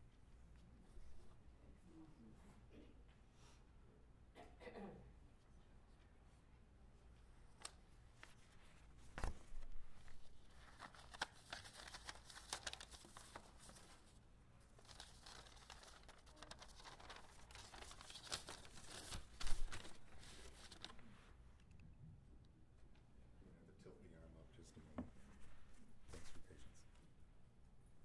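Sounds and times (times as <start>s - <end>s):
rustling handling noises: 7.1s - 21.4s.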